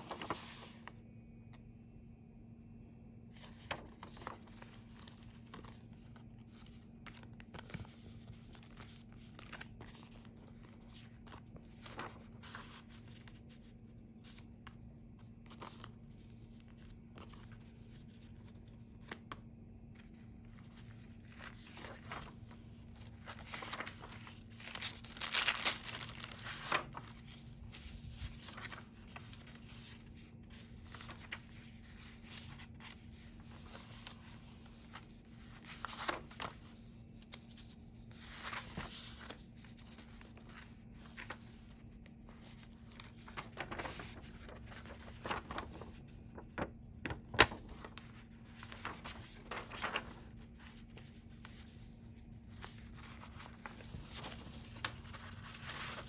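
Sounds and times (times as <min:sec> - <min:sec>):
paper pages rustling: 0:00.0 - 0:01.6, 0:03.3 - 0:56.0.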